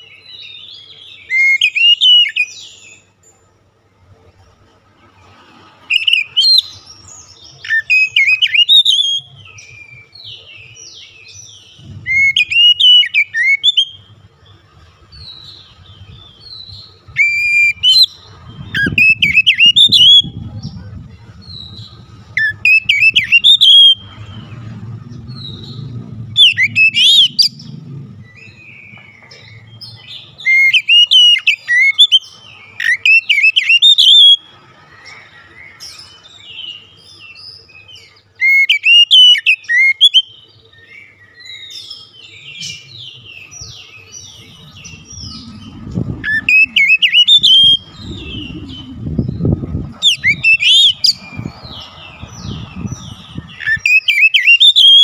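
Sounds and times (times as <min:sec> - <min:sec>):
bird singing whistled phrases: 0:07.6 - 0:10.1, 0:11.8 - 0:14.1, 0:16.1 - 0:20.7, 0:22.4 - 0:24.1, 0:25.4 - 0:27.7, 0:28.4 - 0:34.5, 0:38.4 - 0:40.4, 0:42.4 - 0:51.2, 0:53.5 - 0:55.0.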